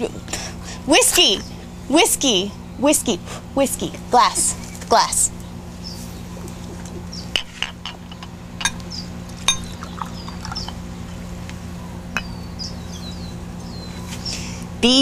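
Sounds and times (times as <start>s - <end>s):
birds chirping: 0.0s - 15.0s
steady low hum: 0.0s - 15.0s
whiskey pouring into glass: 9.5s - 10.7s.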